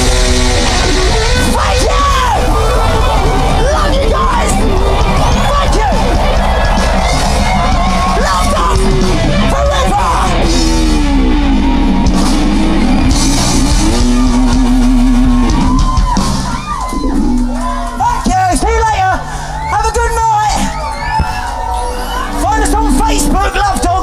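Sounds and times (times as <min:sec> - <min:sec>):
electric guitars: 0:00.0 - 0:18.3
punk rock band playing live: 0:00.0 - 0:24.0.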